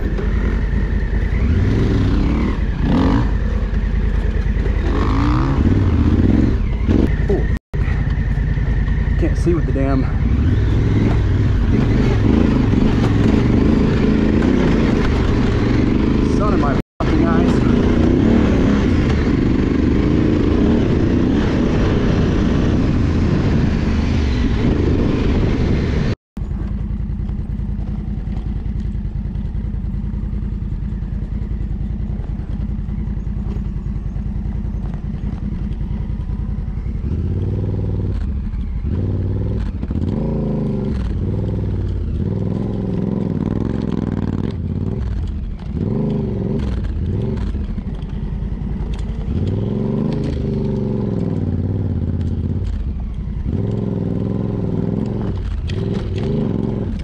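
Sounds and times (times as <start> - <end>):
motorcycle engine revving: 0.0 - 57.0
wind and road noise: 0.0 - 57.0.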